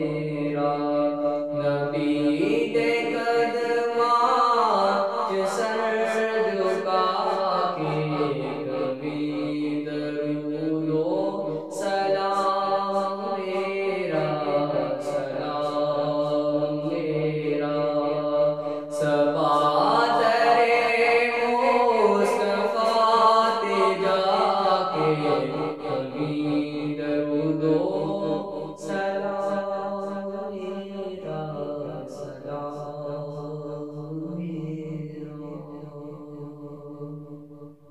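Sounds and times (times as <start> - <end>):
man singing devotional song: 0.0 - 37.8
low drone: 6.6 - 16.3.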